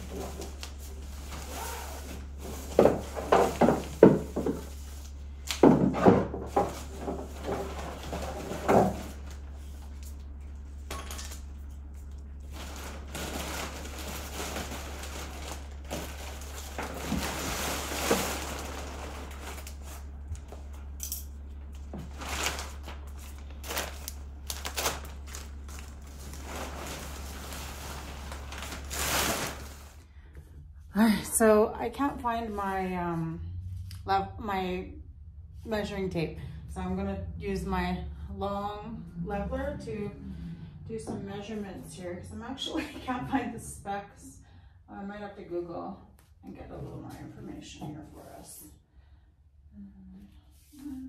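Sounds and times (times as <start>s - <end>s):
steady low hum: 0.0s - 51.0s
plastic wrap crinkling: 11.8s - 20.9s, 21.7s - 30.1s.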